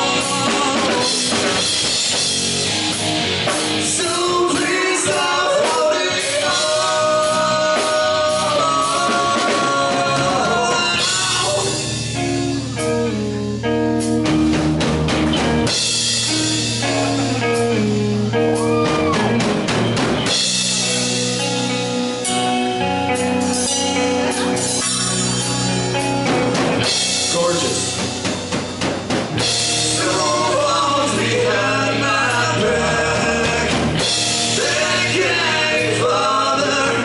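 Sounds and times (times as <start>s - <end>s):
man singing: 0.0s - 1.8s, 3.8s - 12.6s, 29.7s - 37.0s
live rock band playing: 0.0s - 37.0s.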